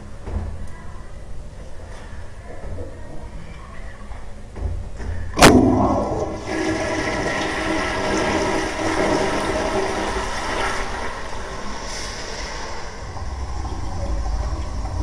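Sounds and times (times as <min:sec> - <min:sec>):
flush valve opening burst: 0:05.4 - 0:15.0
water rushing through toilet bowl: 0:05.4 - 0:15.0.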